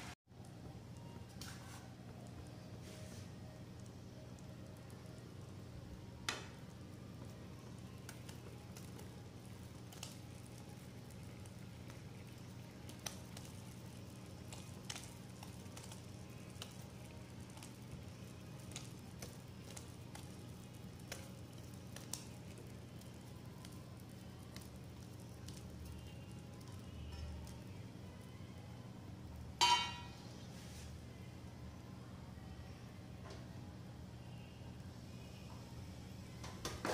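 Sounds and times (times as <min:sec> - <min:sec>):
steady low hum: 0:00.0 - 0:36.6
cheese frying in hot oil: 0:00.4 - 0:31.0
sharp pops and crackles: 0:06.2 - 0:27.6.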